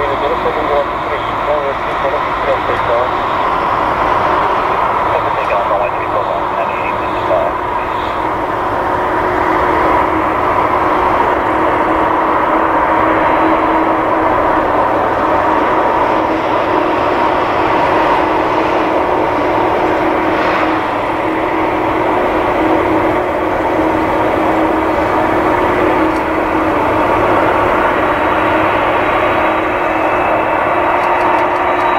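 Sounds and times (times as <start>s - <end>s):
jet engines whining: 0.0s - 31.9s.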